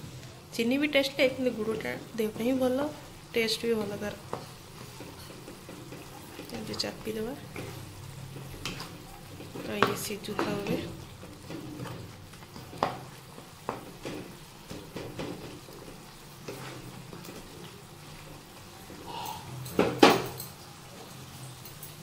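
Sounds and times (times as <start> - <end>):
faint sizzle: 0.0 - 22.0
spatula scraping a pan: 3.8 - 19.2.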